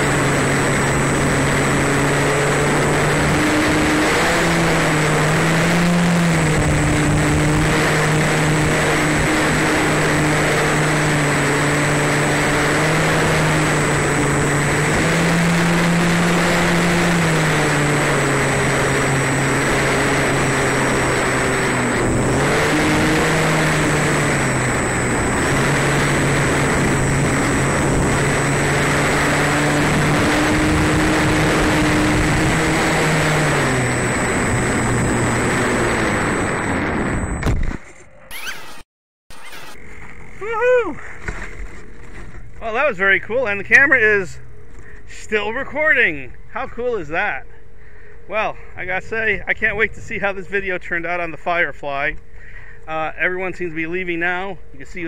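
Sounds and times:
electric motor and propeller hum: 0.0 - 55.0
faint high whine: 0.0 - 55.0.

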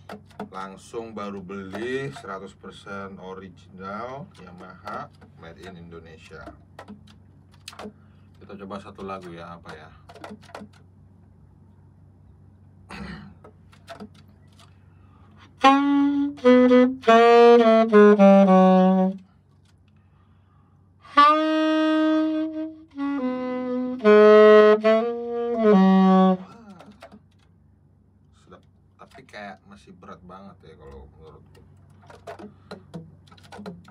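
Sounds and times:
alto saxophone solo: 15.4 - 19.3, 21.0 - 26.9.

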